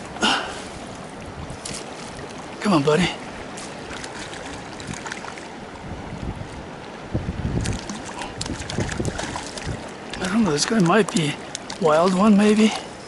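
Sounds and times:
wind buffeting microphone: 0.0s - 2.6s, 3.3s - 13.0s
river rushing: 0.0s - 13.0s
water splashes: 0.0s - 13.0s.

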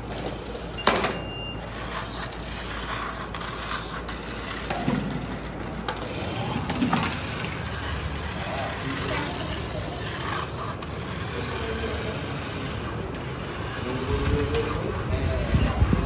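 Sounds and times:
robot motors running: 1.6s - 16.0s.

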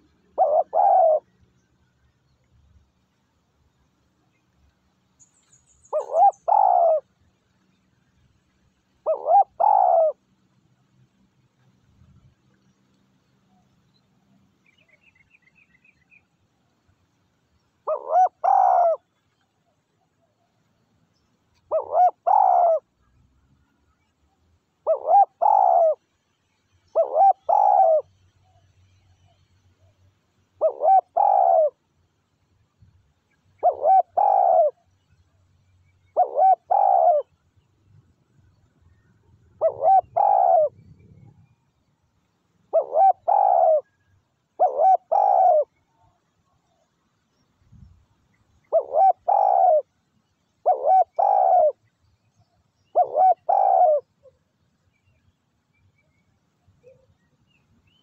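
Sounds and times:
dove cooing: 0.0s - 1.4s, 5.9s - 7.2s, 9.0s - 10.2s, 17.8s - 19.0s, 21.6s - 22.9s, 24.8s - 26.0s, 26.9s - 28.2s, 30.6s - 31.8s, 33.6s - 34.8s, 36.1s - 37.3s, 39.6s - 41.3s, 42.7s - 44.0s, 44.6s - 45.8s, 48.6s - 49.9s, 50.6s - 51.8s, 52.8s - 54.4s.

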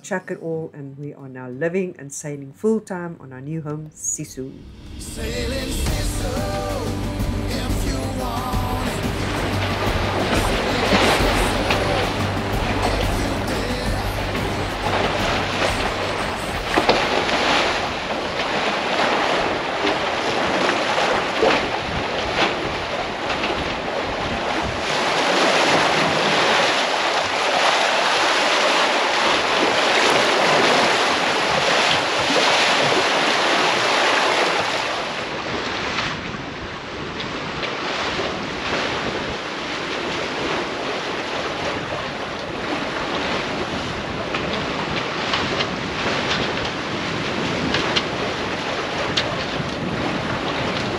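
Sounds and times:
water rushing along a hull: 4.6s - 50.9s
wind buffeting the microphone: 13.6s - 27.5s, 34.6s - 50.9s.

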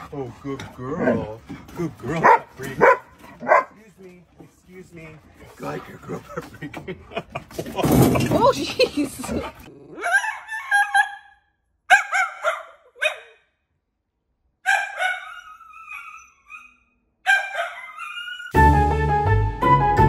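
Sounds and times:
small dog barking: 2.2s - 3.8s, 11.9s - 13.4s, 14.6s - 16.0s, 17.2s - 18.2s.

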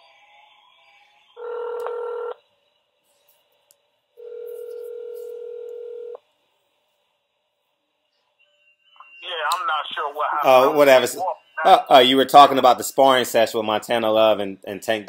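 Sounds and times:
steady telephone tone: 1.4s - 2.4s, 4.2s - 6.2s
telephone ringing tone: 1.4s - 2.4s, 4.2s - 6.2s.

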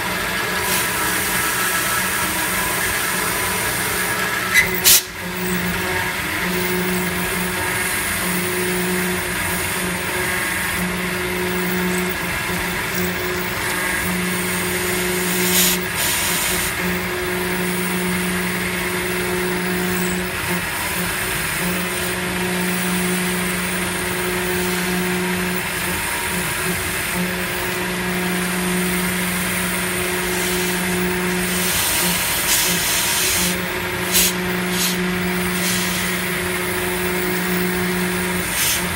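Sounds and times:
milling machine cutting metal: 0.0s - 38.9s
coolant hissing and splashing: 15.4s - 16.7s, 31.4s - 36.1s.

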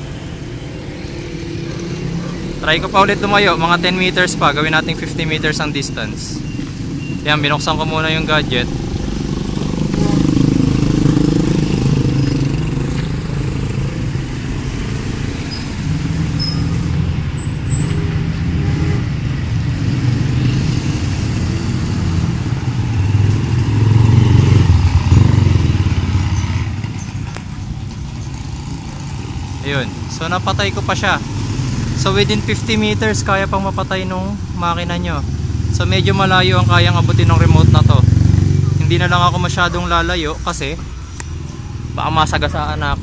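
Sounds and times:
vehicle engine rumbling: 0.0s - 43.0s.

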